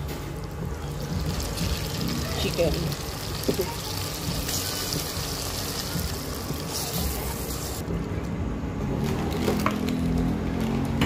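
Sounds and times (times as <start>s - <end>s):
chicken sizzling in a pan: 0.8s - 7.8s.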